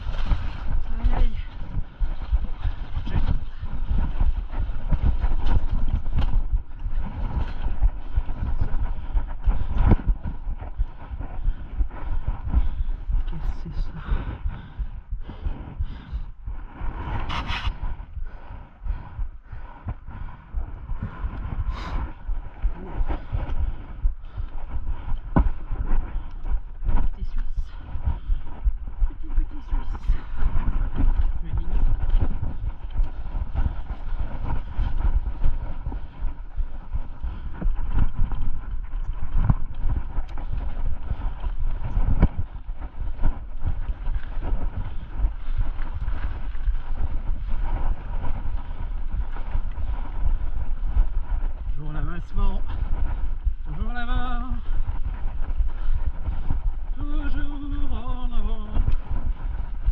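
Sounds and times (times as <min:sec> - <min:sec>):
low rumble from trail: 0:00.0 - 0:59.9
wind on microphone: 0:00.0 - 0:59.9
person breathing hard: 0:06.9 - 0:29.1.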